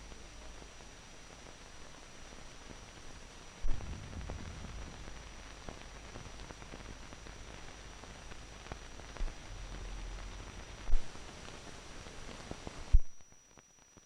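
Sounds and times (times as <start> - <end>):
crackles and pops: 0.0 - 14.0
faint high whine: 0.0 - 14.0
film soundtrack hiss: 0.0 - 14.0
low thumps: 3.6 - 11.4
low rumble: 3.6 - 12.2.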